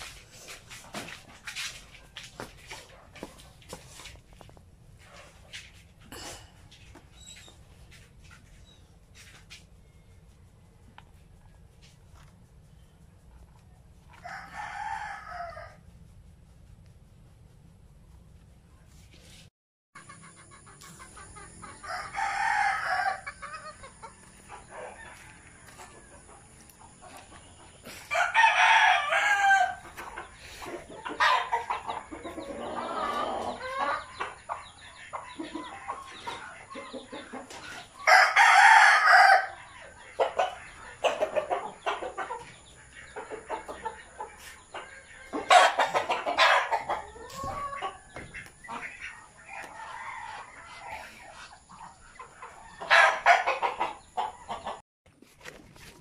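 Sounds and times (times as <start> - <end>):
chickens clucking: 0.0 - 19.4, 20.0 - 54.8
rooster crowing: 14.1 - 15.8, 21.6 - 23.9, 24.6 - 26.3, 27.9 - 29.8, 38.0 - 39.6, 49.6 - 51.1.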